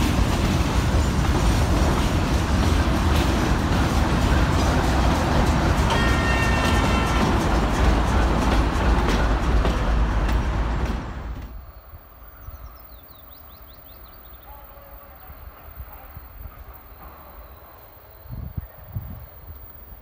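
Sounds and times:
train wheels clicking over rails: 0.0s - 11.8s
diesel locomotive engine rumble: 0.0s - 12.9s
birds chirping: 0.2s - 18.8s.

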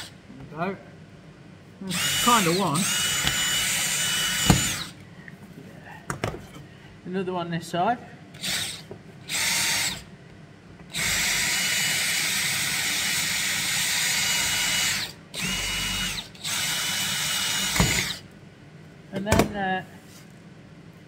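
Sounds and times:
cordless drill drilling metal: 1.9s - 5.0s, 8.4s - 10.1s, 10.9s - 18.2s.

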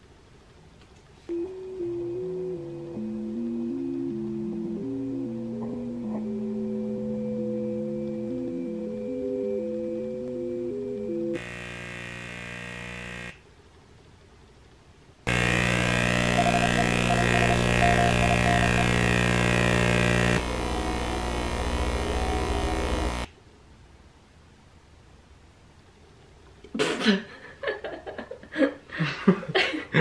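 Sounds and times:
harsh electronic buzzing: 11.4s - 13.4s, 15.3s - 23.3s.

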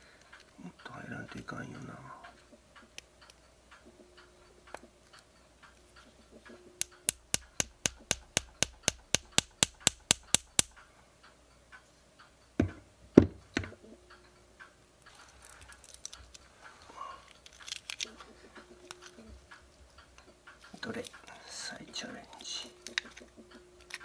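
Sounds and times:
small metal parts clicking: 4.7s - 10.8s, 15.0s - 16.5s, 17.3s - 19.2s.

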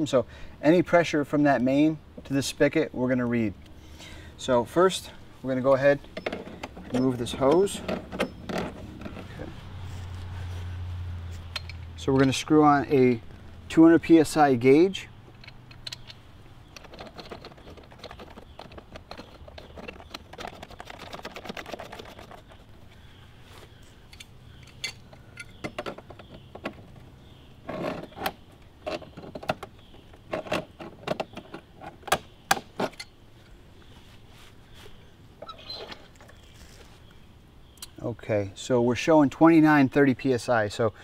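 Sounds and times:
metal clicks and scraping: 6.0s - 9.5s, 11.3s - 12.5s, 15.3s - 22.7s, 24.1s - 33.6s.

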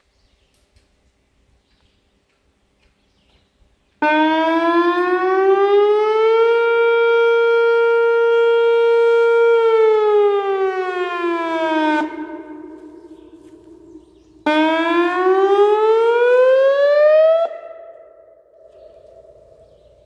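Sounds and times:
warning siren: 4.0s - 20.0s.

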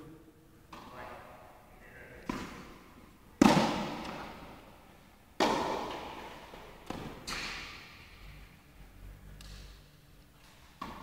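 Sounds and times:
tennis ball struck and bouncing: 0.7s - 1.0s, 2.3s - 2.8s, 3.4s - 4.6s, 5.4s - 8.2s, 10.4s - 11.0s.

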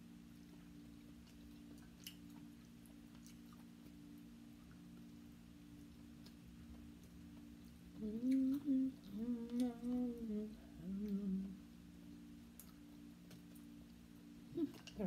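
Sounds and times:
steady low hum: 0.0s - 15.0s
chewing: 0.3s - 5.1s, 5.7s - 10.1s
woman humming: 7.9s - 11.8s, 14.5s - 15.0s.

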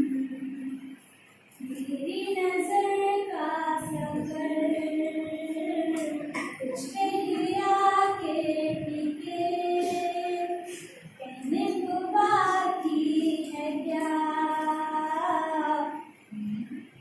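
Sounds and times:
young woman singing: 1.6s - 16.7s.

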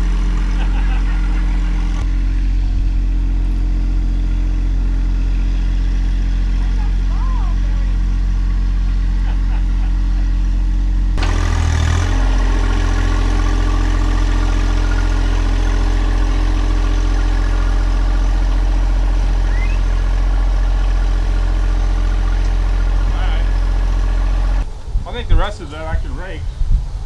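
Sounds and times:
loader bucket pushing soil: 0.0s - 2.5s, 11.2s - 24.6s
tractor diesel engine running: 0.0s - 26.4s.

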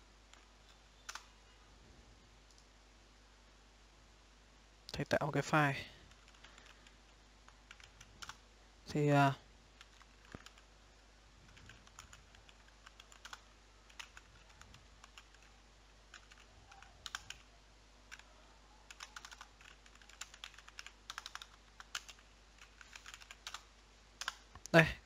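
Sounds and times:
faint keyboard typing: 0.3s - 1.6s, 6.0s - 8.4s, 9.7s - 17.5s, 18.1s - 24.8s.

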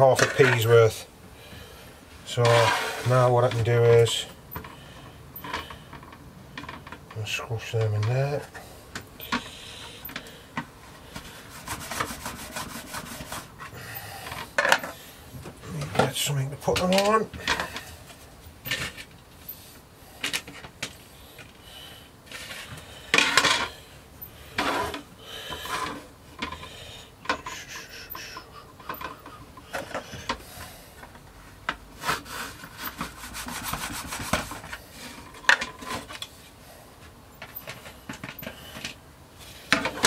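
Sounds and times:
plastic rolling table rubbing: 2.4s - 3.7s, 11.0s - 15.0s, 24.5s - 31.2s, 32.0s - 36.3s
plastic scrapes and knocks: 2.4s - 4.1s, 10.6s - 13.7s, 32.0s - 36.3s.

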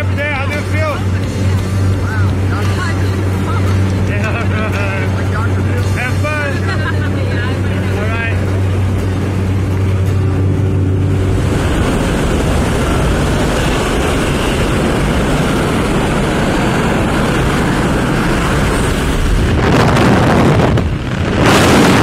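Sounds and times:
plane engine droning: 0.0s - 22.0s
wind buffeting on microphone: 0.0s - 22.0s
wind rushing through open door: 10.8s - 22.0s.

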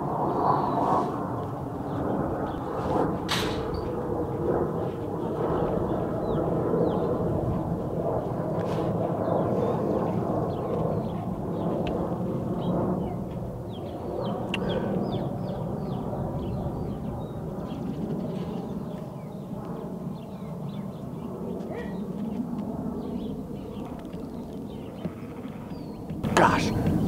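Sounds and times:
airplane engine flying over: 0.0s - 27.0s
small birds chirping: 12.6s - 27.0s.

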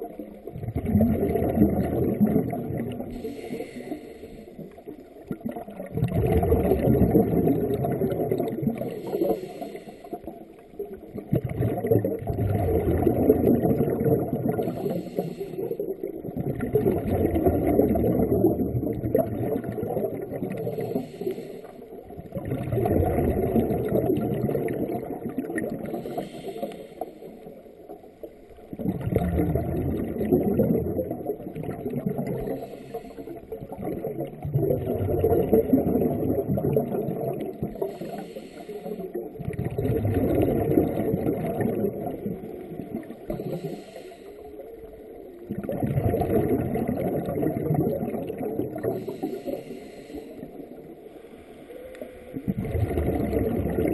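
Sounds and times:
low bubbling exhale: 0.0s - 53.9s
regulator hiss on inhale: 3.1s - 5.0s, 8.8s - 10.7s, 14.6s - 16.0s, 20.6s - 22.0s, 25.8s - 27.6s, 32.4s - 33.6s, 37.8s - 39.2s, 43.2s - 44.8s, 48.8s - 52.4s.

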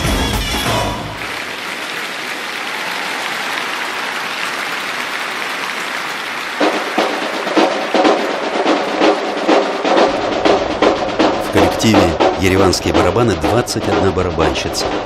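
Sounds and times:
crowd applauding: 0.0s - 15.0s
marching snare drums: 6.5s - 15.0s.

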